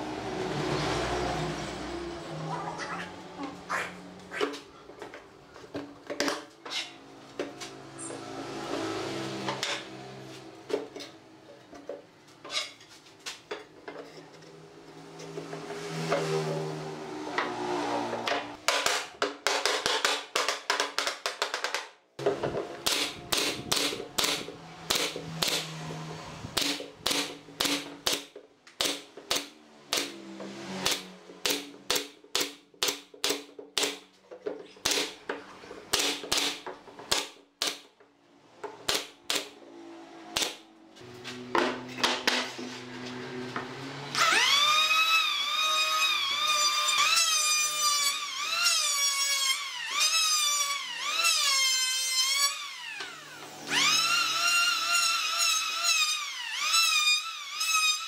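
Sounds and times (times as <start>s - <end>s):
nail gun firing into wood: 22.8s - 25.6s, 26.6s - 30.2s, 30.8s - 34.0s, 34.8s - 35.2s, 35.9s - 37.8s, 38.8s - 39.5s
electric planer motor whining: 42.7s - 58.0s.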